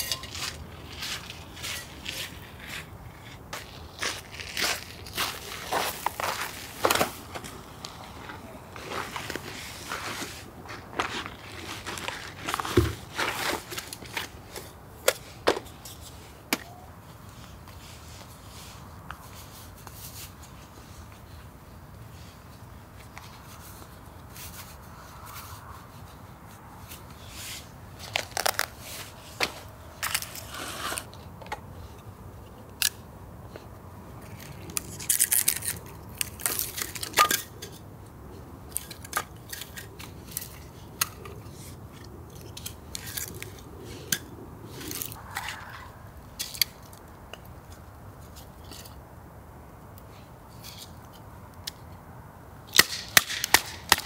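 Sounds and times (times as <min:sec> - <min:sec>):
crunches clicks and scrapes of handling: 0:23.0 - 0:37.8, 0:46.4 - 0:49.0, 0:49.9 - 0:52.0.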